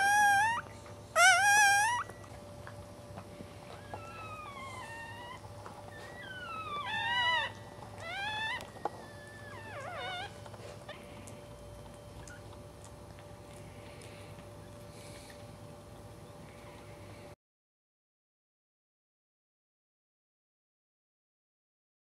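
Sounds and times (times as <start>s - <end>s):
puppy whining: 0.0s - 15.5s.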